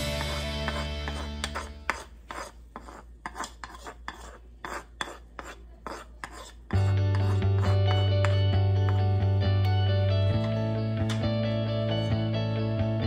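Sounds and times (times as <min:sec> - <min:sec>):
background music: 0:00.0 - 0:01.9, 0:06.8 - 0:13.0
metal spoon scraping a bowl: 0:00.0 - 0:09.1, 0:11.8 - 0:12.2.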